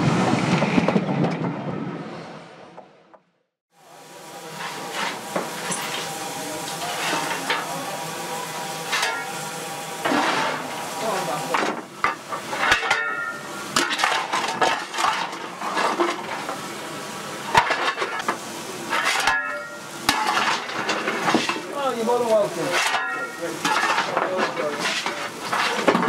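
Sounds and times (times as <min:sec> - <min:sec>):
steam hissing: 0:03.8 - 0:26.0
metal clanks and knocks: 0:11.5 - 0:16.6, 0:17.5 - 0:21.7, 0:22.7 - 0:26.0.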